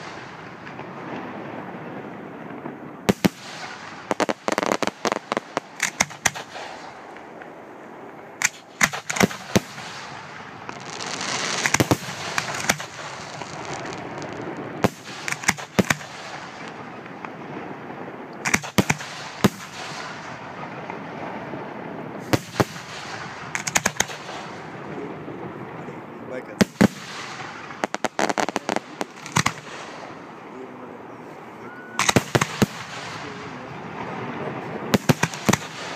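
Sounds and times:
firework hissing crackle: 0:03.1 - 0:07.4, 0:08.4 - 0:16.9, 0:22.2 - 0:24.8, 0:26.6 - 0:30.4, 0:32.0 - 0:33.7
firework shells bursting: 0:03.1 - 0:07.6, 0:08.4 - 0:17.3, 0:22.2 - 0:24.8, 0:26.6 - 0:30.4, 0:32.0 - 0:33.6, 0:34.9 - 0:35.9.

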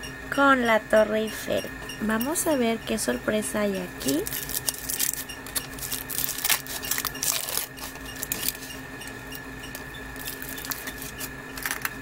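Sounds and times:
foil wrapper crinkling: 0:04.0 - 0:08.8, 0:09.7 - 0:12.0.

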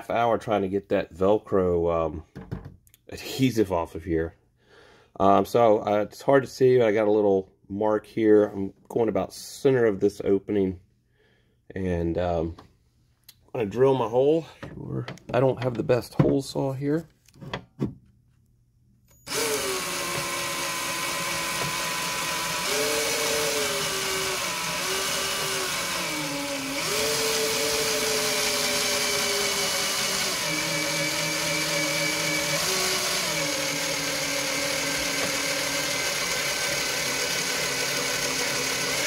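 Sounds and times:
drill with hole saw cutting plastic: 0:19.2 - 0:39.0.

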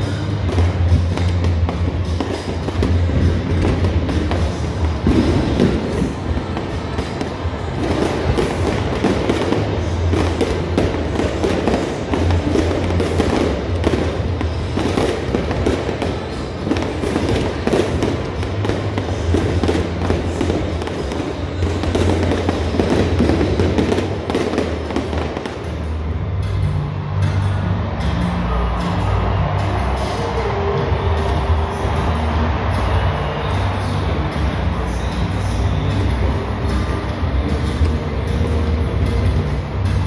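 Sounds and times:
fireworks crackling and popping: 0:00.0 - 0:26.7
loud music with steady bass: 0:00.0 - 0:40.0.

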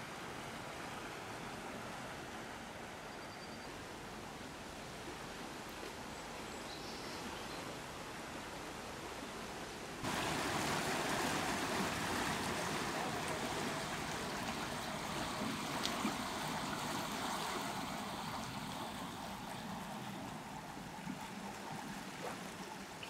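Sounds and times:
floodwater rushing: 0:07.8 - 0:23.0.

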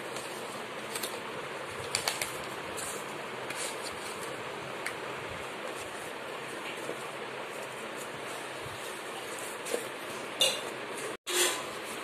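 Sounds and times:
paper and cardboard rustling: 0:00.0 - 0:04.4.

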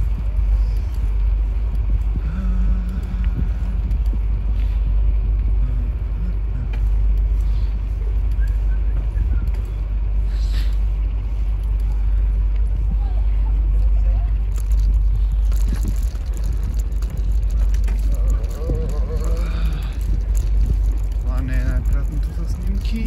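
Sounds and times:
bicycle road noise: 0:00.0 - 0:23.0
wind on microphone: 0:00.0 - 0:23.0.

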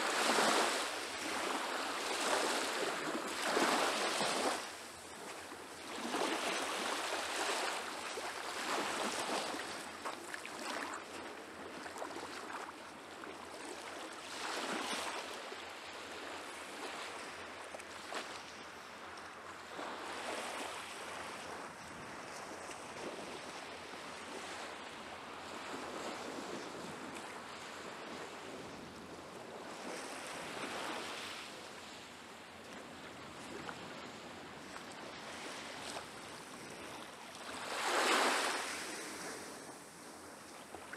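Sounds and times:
waves lapping on sandy shore: 0:00.0 - 0:40.9.

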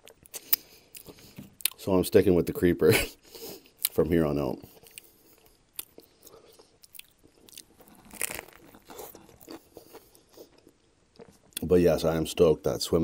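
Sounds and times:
person chewing a sandwich: 0:00.0 - 0:01.8, 0:04.6 - 0:11.7
crunching bite: 0:06.8 - 0:11.3.

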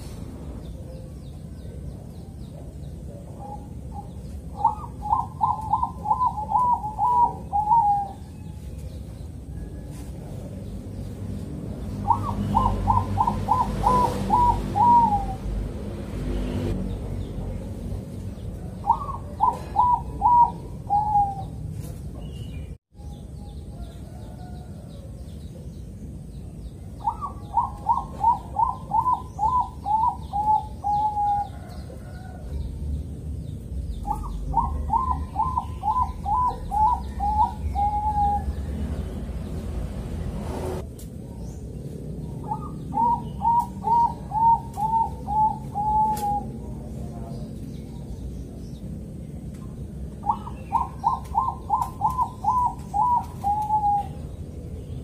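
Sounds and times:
dove cooing: 0:00.8 - 0:08.9, 0:12.0 - 0:15.7, 0:18.5 - 0:21.9, 0:27.0 - 0:32.6, 0:34.0 - 0:38.9, 0:42.3 - 0:47.2, 0:50.2 - 0:54.4.

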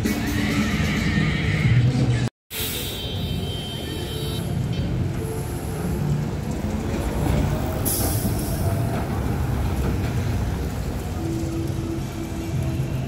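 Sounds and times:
electric trolleybus passing: 0:00.0 - 0:13.0
street traffic rumble: 0:00.0 - 0:13.0.

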